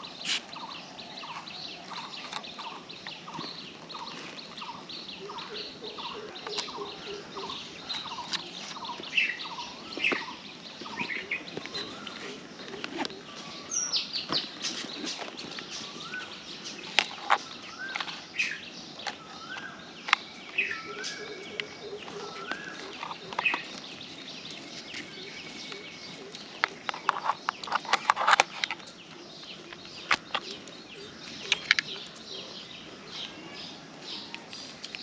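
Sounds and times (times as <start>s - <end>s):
birds chirping: 0.0s - 35.0s
remote controller clicks and rattles: 26.6s - 29.0s.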